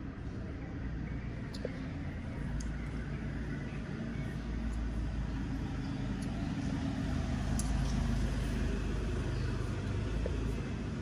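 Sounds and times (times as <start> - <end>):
low engine-like rumble: 0.0 - 11.0
faint light ticks: 7.5 - 8.0.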